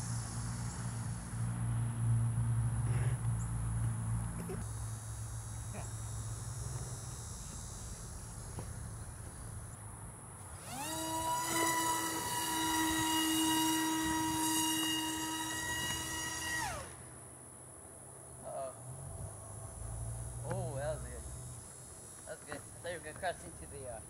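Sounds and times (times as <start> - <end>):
electric motor and propeller whine: 0.0 - 17.5.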